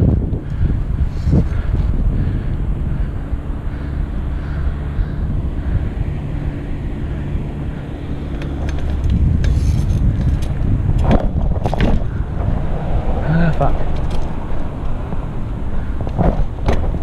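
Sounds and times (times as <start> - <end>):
bike tyres rumbling on asphalt: 0.0 - 17.0
wind buffeting microphone: 0.0 - 17.0
sharp clicks and rattles: 8.0 - 12.6, 13.4 - 17.0.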